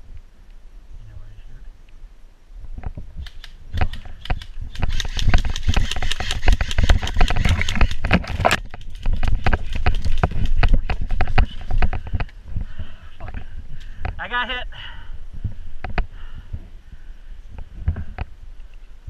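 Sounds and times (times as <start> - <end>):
wind rumble on microphone: 2.5 - 14.3, 15.1 - 19.0
camera handling noise: 3.2 - 12.4.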